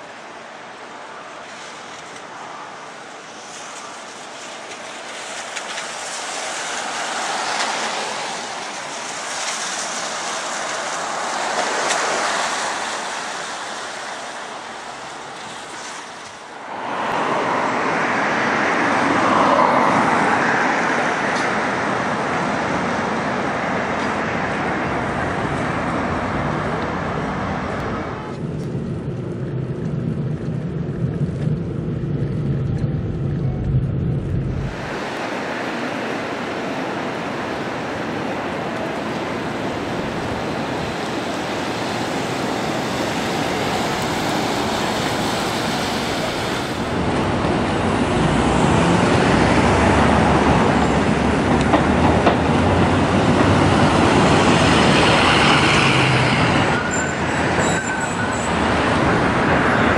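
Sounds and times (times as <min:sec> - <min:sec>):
tyres hissing on wet road: 0:00.0 - 0:28.9, 0:34.5 - 0:59.9
car interior driving rumble: 0:26.6 - 0:35.1.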